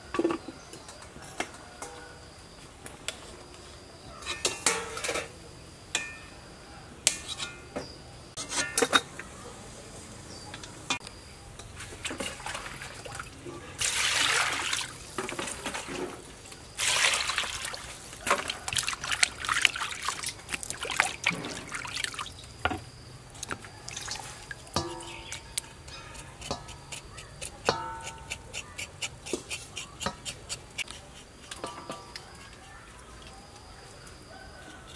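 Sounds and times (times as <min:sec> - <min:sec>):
water pouring into steel basin: 0:12.1 - 0:15.9, 0:16.8 - 0:22.4
hands sloshing in water: 0:16.8 - 0:22.3.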